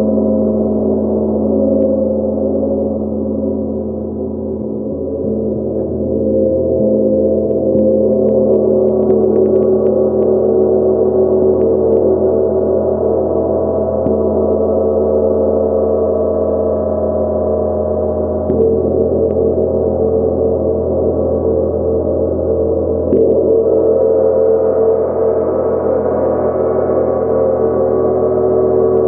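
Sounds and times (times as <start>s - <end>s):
gong ringing: 3.0s - 9.2s.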